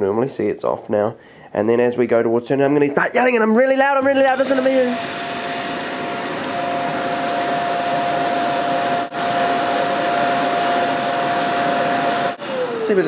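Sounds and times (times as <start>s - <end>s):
vacuum cleaner running: 3.6s - 13.0s.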